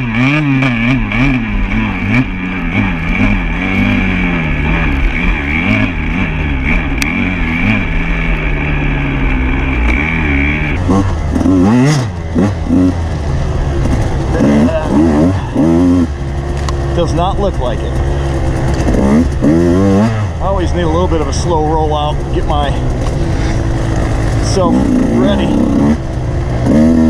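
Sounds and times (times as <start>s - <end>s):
steady high whine: 0.0s - 26.5s
off-road motorcycle engine: 0.0s - 27.0s.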